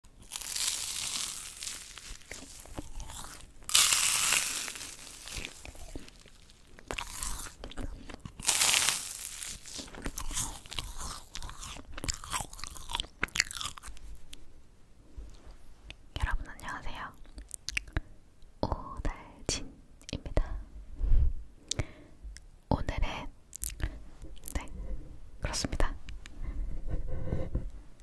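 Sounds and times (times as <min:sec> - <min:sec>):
crackly chewing: 0:00.0 - 0:14.4, 0:17.2 - 0:18.1
crunching bites: 0:00.1 - 0:14.0.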